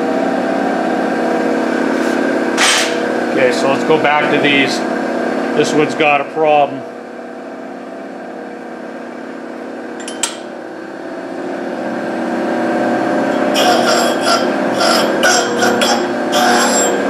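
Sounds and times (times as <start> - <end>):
grinder motor running: 0.0 - 6.3, 9.5 - 17.0
grinding wheel cutting steel: 13.2 - 17.0.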